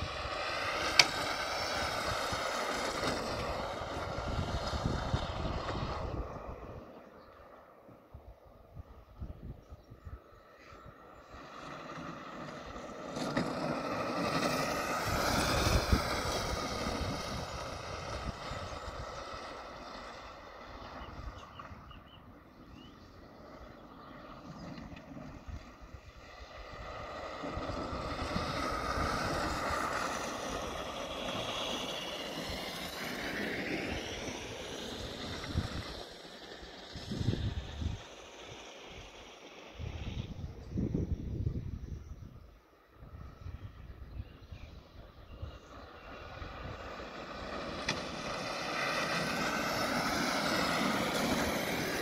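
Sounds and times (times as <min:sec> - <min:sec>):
wind on microphone: 0:00.0 - 0:07.3, 0:08.1 - 0:11.5, 0:12.6 - 0:52.0
electric kart motor whining: 0:00.0 - 0:52.0.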